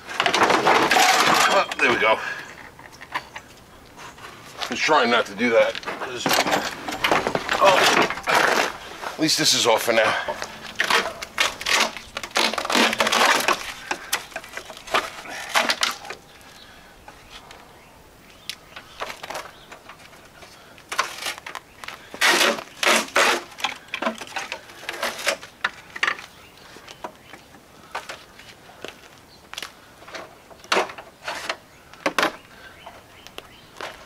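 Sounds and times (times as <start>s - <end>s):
hard plastic clattering and scraping: 0.0s - 2.0s, 4.2s - 16.3s, 18.7s - 26.4s, 30.0s - 32.4s.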